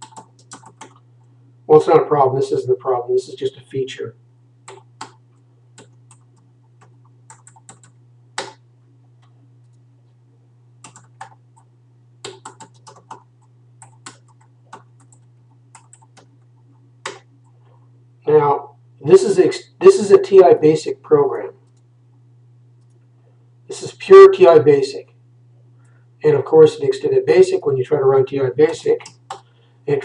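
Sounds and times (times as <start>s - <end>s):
computer keyboard typing: 0.0s - 1.0s, 4.7s - 5.2s, 5.8s - 8.6s, 10.8s - 16.4s, 17.0s - 17.3s
steady low hum: 0.0s - 30.0s.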